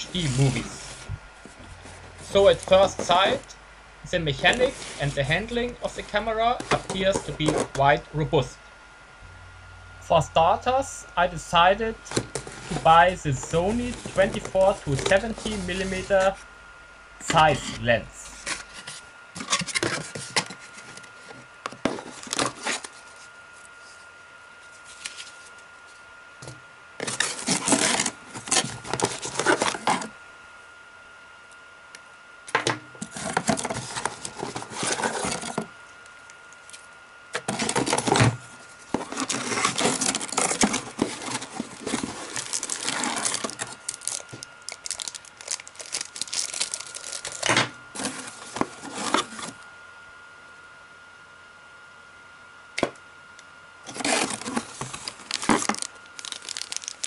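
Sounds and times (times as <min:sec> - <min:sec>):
cardboard and plastic rustling: 0:00.0 - 0:03.5, 0:04.3 - 0:07.8, 0:12.0 - 0:16.4, 0:18.3 - 0:30.1, 0:33.0 - 0:49.6, 0:53.9 - 0:57.0.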